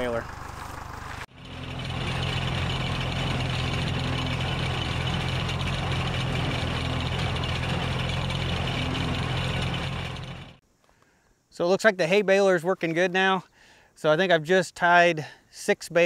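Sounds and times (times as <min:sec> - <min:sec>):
baler working: 0:00.0 - 0:10.6
tractor engine running: 0:00.0 - 0:10.6.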